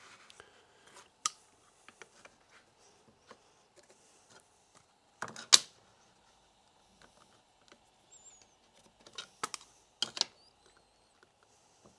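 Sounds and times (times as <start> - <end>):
wood pieces and tools clicking: 7.0 - 11.5.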